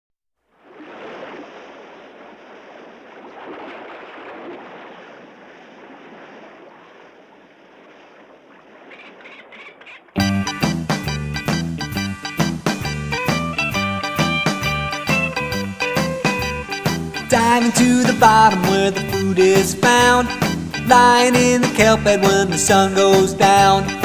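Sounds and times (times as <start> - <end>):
ocean surf washing: 0.5 - 24.0
guitar-backed song: 10.2 - 24.0.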